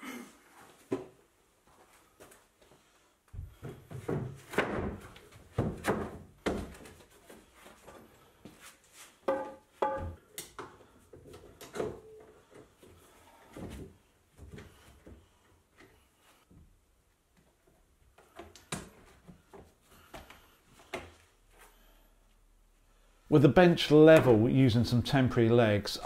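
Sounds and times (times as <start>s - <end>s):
wooden boards knocking and thudding: 3.4s - 7.0s, 9.3s - 10.2s.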